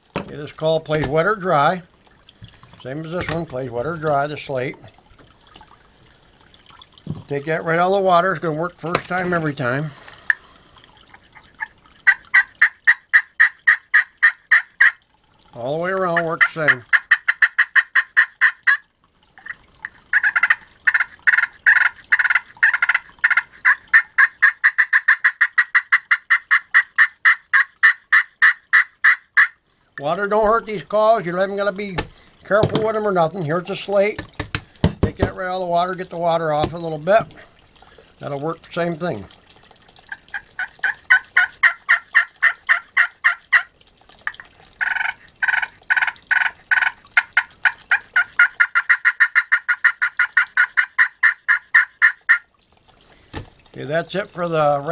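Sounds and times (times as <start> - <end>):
turkey call raspy yelps: 11.4 - 15.0, 16.1 - 29.6, 40.1 - 43.7, 44.3 - 52.5.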